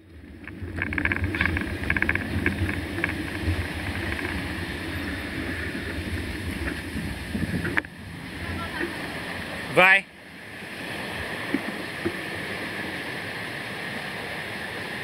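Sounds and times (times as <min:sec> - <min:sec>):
bike rattling: 0:00.0 - 0:09.0
bike tyre noise: 0:00.0 - 0:09.1
wind rumble on microphone: 0:00.0 - 0:09.7.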